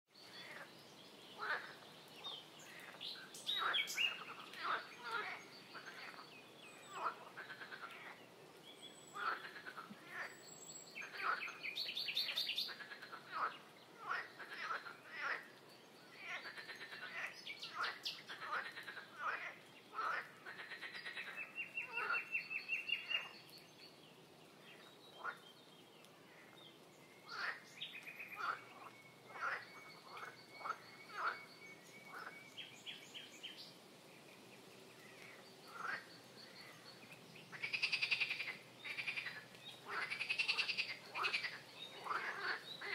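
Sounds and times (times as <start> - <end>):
wetland animals chirping: 35.0 - 42.9.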